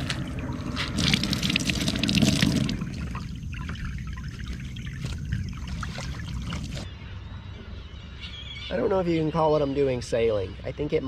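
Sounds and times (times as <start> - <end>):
water trickling from wet rag: 0.0 - 6.9.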